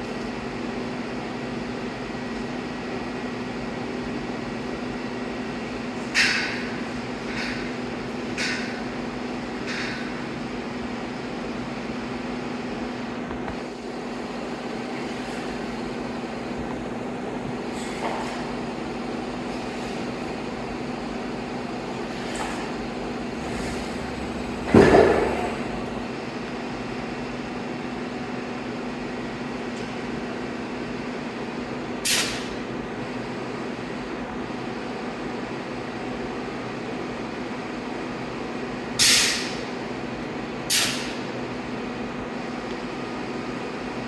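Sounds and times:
machine hum: 0.0 - 31.4.

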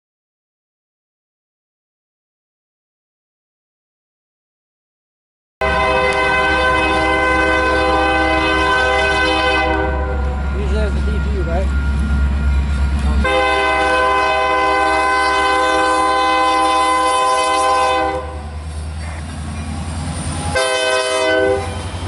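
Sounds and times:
locomotive air horn blasts: 5.6 - 10.4, 13.2 - 18.4, 20.5 - 21.8
locomotive passing rumble: 5.6 - 22.0.

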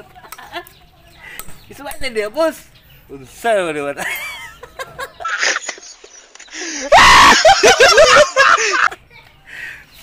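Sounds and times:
person screaming: 6.8 - 7.6.

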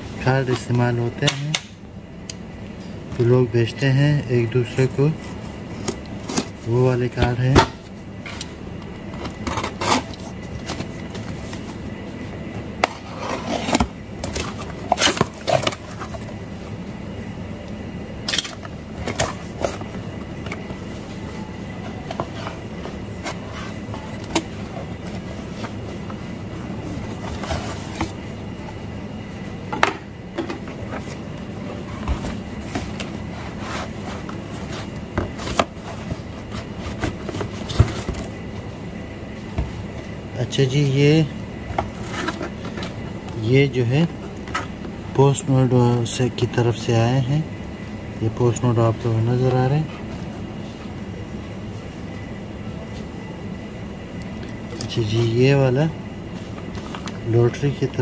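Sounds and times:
steady low hum: 0.0 - 58.0
cardboard and paper rustling: 26.8 - 28.2, 31.8 - 38.4.

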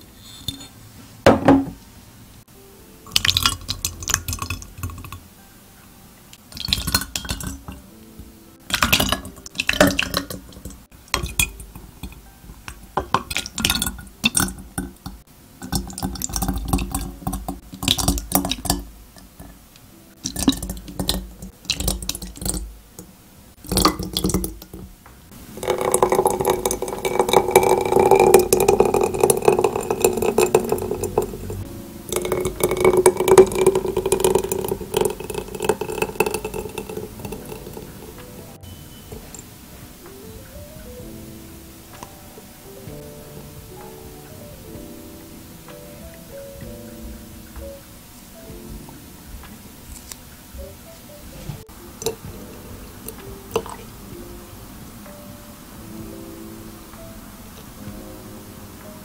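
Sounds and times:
cream pouring into bottle: 25.5 - 38.1, 53.0 - 53.9
glass bottles clinking: 25.6 - 37.9.

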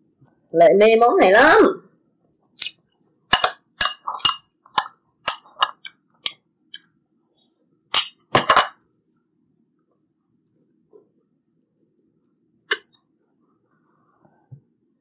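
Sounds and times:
chopsticks clinking on bowls: 3.3 - 6.4, 8.0 - 8.7.

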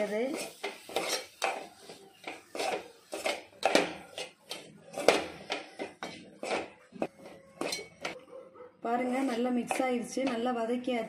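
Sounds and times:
metal spoon scraping a pan: 0.0 - 8.2, 8.9 - 10.6.

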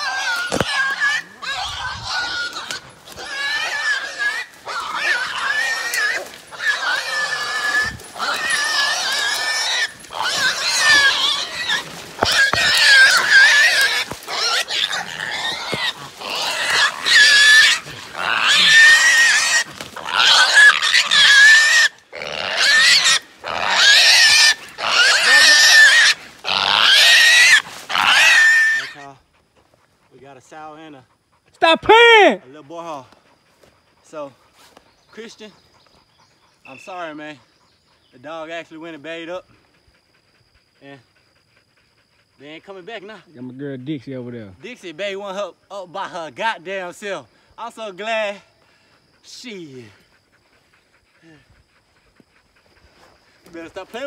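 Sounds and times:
wild hog squealing: 0.0 - 29.4, 30.1 - 33.1, 33.9 - 44.0.

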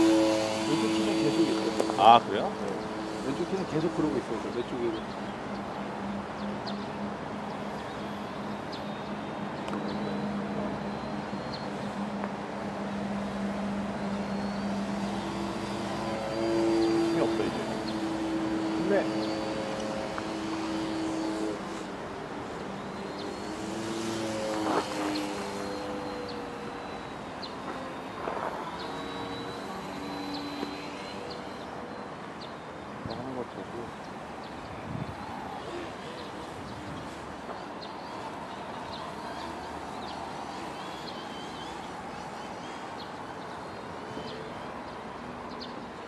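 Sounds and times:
model plane motor droning: 0.0 - 46.0.

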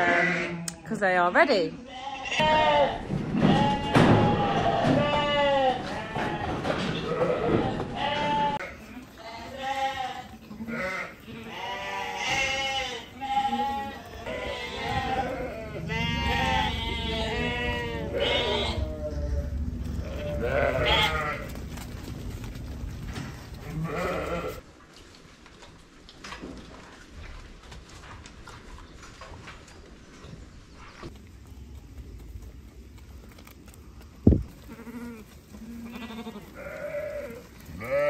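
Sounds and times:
sheep bleating: 0.0 - 0.7, 1.8 - 21.6, 23.6 - 24.6, 34.6 - 38.0.

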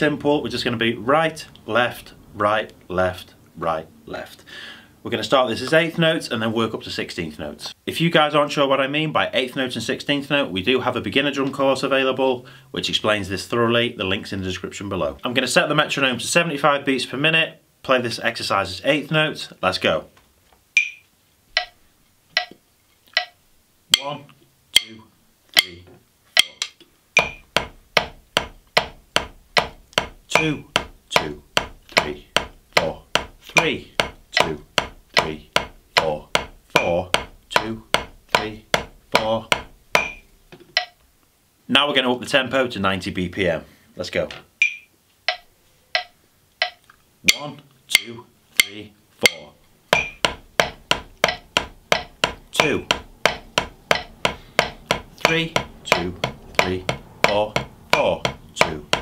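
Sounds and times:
drumsticks striking a practice pad: 20.8 - 24.2, 24.8 - 25.0, 25.6 - 41.0, 44.6 - 59.0.

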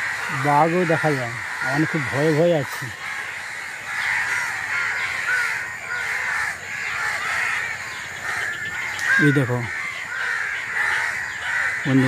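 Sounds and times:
chorus of birds calling: 0.0 - 12.0.

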